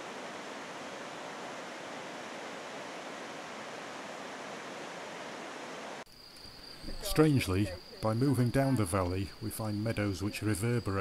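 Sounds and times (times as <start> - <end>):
river rushing: 0.0 - 6.1.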